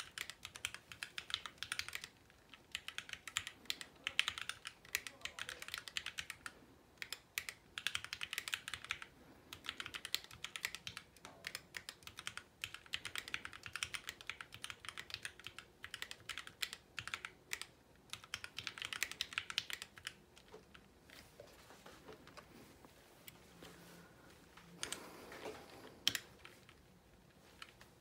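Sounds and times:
mechanical keyboard keystroke clicks: 0.0s - 20.8s.

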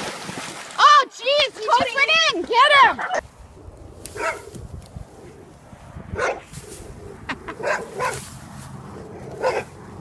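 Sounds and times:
dog barking: 4.2s - 4.4s, 6.2s - 6.5s, 7.6s - 8.2s, 9.4s - 9.8s.

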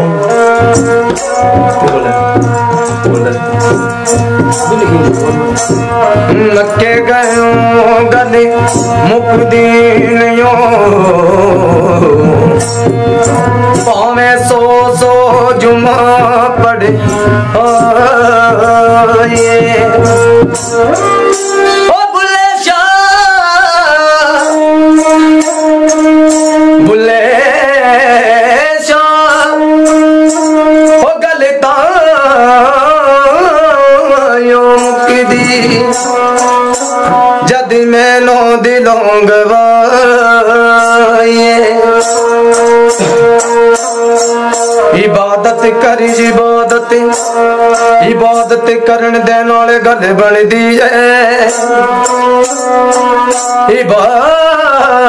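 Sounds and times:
bowed fiddle melody: 0.0s - 31.4s, 33.4s - 49.4s
bells jingling on bow: 0.2s - 10.2s, 10.9s - 21.9s, 34.8s - 37.5s, 40.8s - 48.6s, 51.4s - 53.7s.

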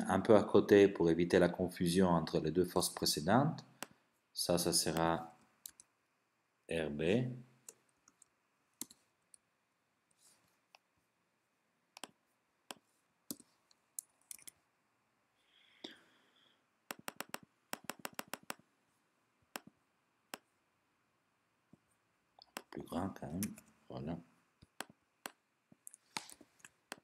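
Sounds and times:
mouse and keyboard clicks: 16.9s - 18.6s.

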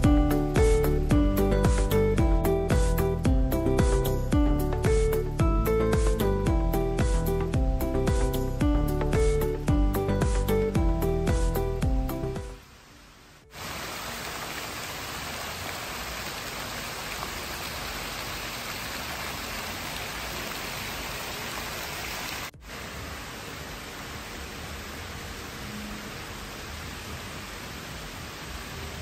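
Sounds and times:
fountain water splashing: 13.5s - 29.0s.

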